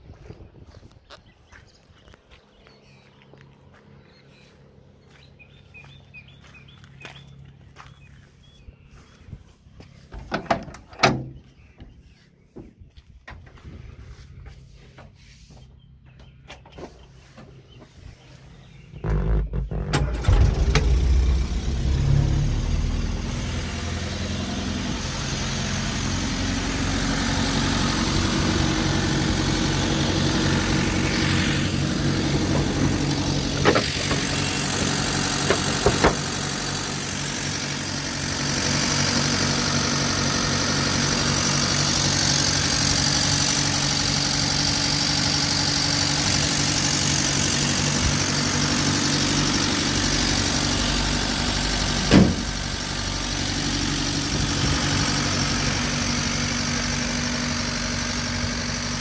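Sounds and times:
engine idling: 0:18.2 - 0:59.0.

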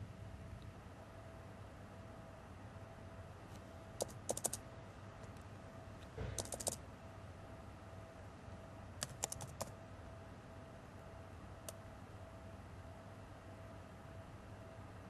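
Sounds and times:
typing on keyboard: 0:04.0 - 0:04.6, 0:06.4 - 0:06.8, 0:09.0 - 0:09.7.

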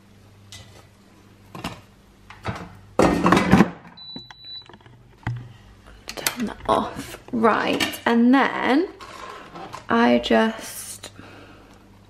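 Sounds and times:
low electrical hum: 0:00.0 - 0:12.0
kitchen items clattering: 0:01.5 - 0:04.0
kitchen items knocking: 0:02.4 - 0:04.0.

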